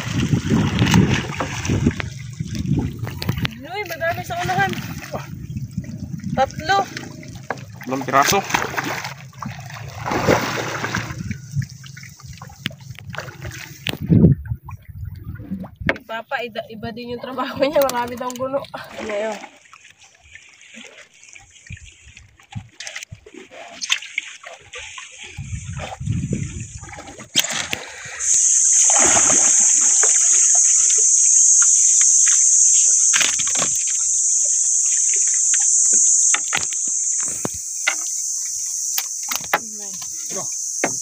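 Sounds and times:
water splashing and dripping: 0.0s - 16.1s, 17.2s - 41.0s
knocks of fishing net hauling: 7.4s - 11.2s
loud high-pitched buzz: 28.2s - 39.6s.

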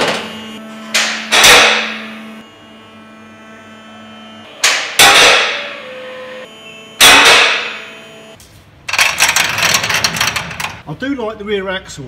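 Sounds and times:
loud ringing metal bangs: 0.0s - 2.2s, 4.5s - 6.0s, 7.0s - 7.9s
rattling clatter: 8.9s - 10.8s.

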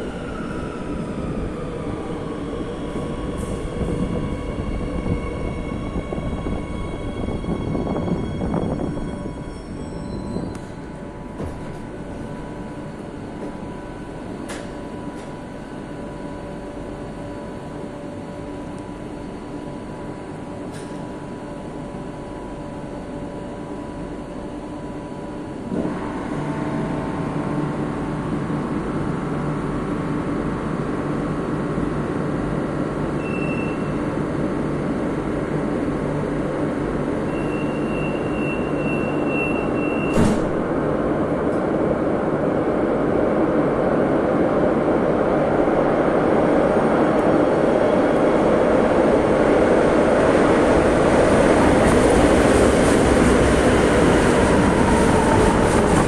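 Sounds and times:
train rumbling through tunnel: 0.0s - 56.0s
thump: 40.1s - 40.6s.

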